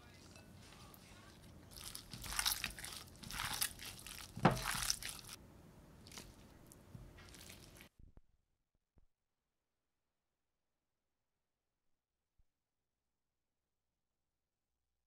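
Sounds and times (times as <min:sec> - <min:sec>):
wet squishing of meat: 0:01.3 - 0:05.4, 0:06.0 - 0:07.9.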